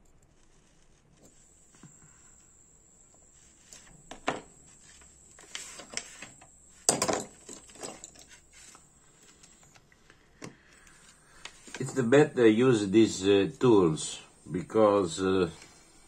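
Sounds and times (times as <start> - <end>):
small metallic clicks and scrapes: 3.2 - 12.0.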